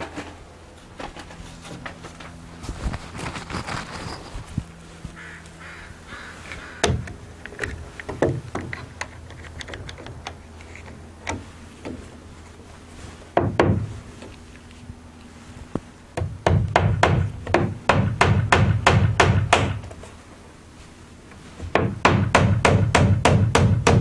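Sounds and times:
hammer nailing into wood: 0:16.2 - 0:19.8, 0:21.7 - 0:24.0.

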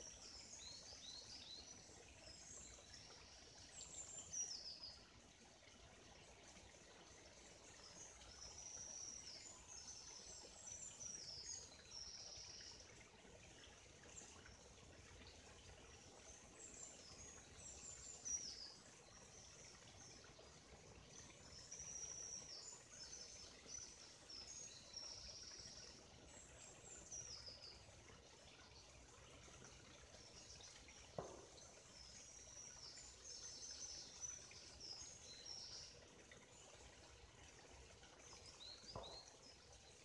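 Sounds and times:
stream flowing: 0:00.0 - 0:40.0
songbird singing: 0:38.4 - 0:39.7.

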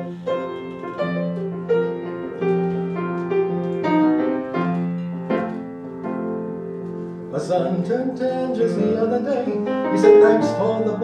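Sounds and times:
piano playing slow chords: 0:00.0 - 0:11.0.

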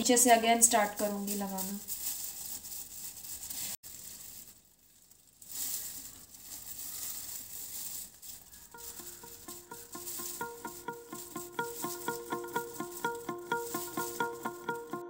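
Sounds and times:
plastic gloves crinkling: 0:00.0 - 0:15.0
soft music notes: 0:08.7 - 0:15.0.

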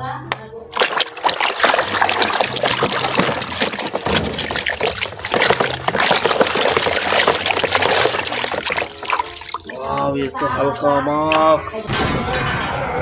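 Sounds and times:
hand splashing in water: 0:00.7 - 0:10.1.

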